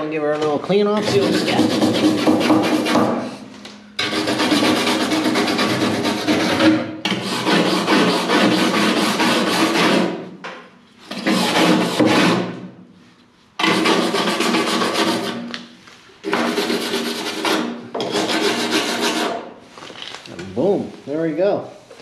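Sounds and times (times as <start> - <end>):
wire brush scrubbing metal: 1.0 - 2.9, 4.0 - 10.1.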